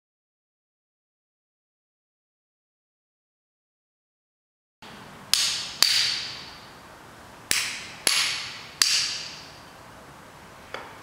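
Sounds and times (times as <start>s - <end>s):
hammer blows ringing: 5.3s - 6.8s, 7.5s - 9.6s.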